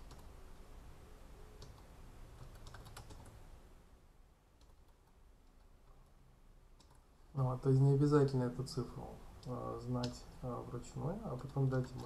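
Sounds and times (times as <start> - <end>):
keyboard typing: 0.0 - 0.4, 1.6 - 3.4, 4.6 - 6.2, 6.8 - 7.0, 11.3 - 12.0.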